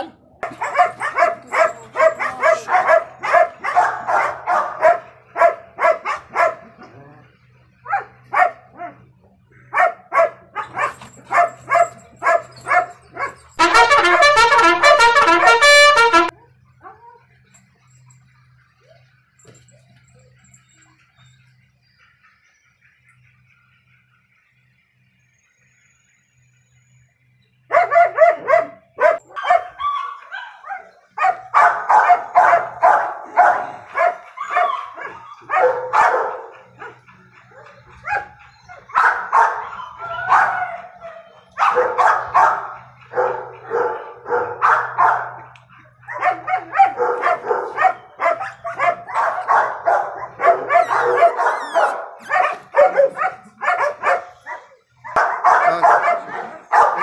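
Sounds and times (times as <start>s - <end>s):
dogs barking: 0.0s - 21.2s, 27.6s - 57.0s.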